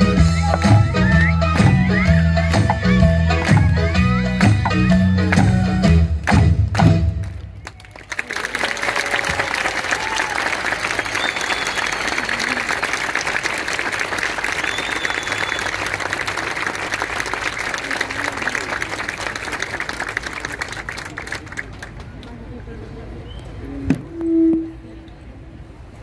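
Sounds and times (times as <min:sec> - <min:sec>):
audience applauding: 0:07.2 - 0:22.2.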